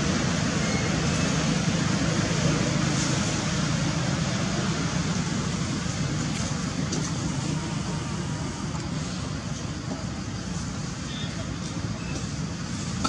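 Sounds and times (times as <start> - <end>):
low rumbling background noise: 0.0 - 13.0.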